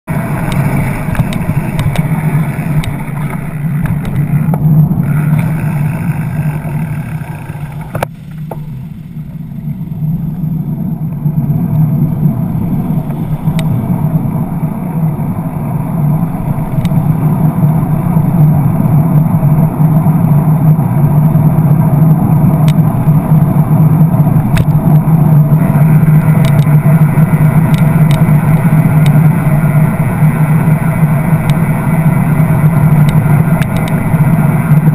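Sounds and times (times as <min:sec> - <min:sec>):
motor traffic: 0:00.0 - 0:34.9
road noise: 0:00.0 - 0:34.9
wind rumble on microphone: 0:00.1 - 0:34.9
sharp clicks: 0:26.4 - 0:26.8, 0:33.0 - 0:34.0.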